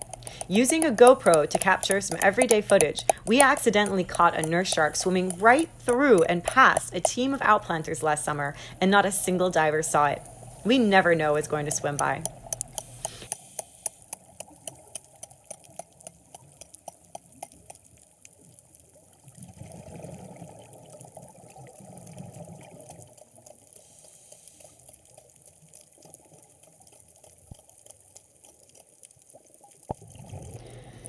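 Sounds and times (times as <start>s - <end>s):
sharp clicks: 0.0s - 7.7s, 10.8s - 17.8s
diver's exhaled bubbles gurgling: 19.2s - 23.4s, 29.8s - 31.0s.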